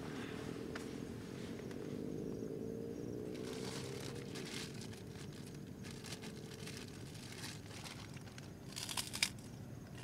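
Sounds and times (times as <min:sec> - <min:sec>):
fabric rustling and crinkling: 0:03.4 - 0:09.4.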